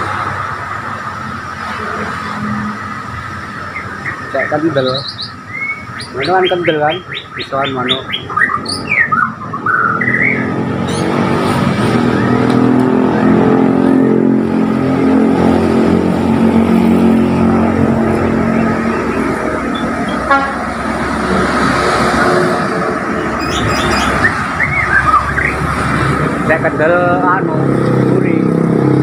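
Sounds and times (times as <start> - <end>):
vehicle engine droning: 0.0 - 29.0
bird whistling: 3.6 - 11.2, 23.2 - 25.7.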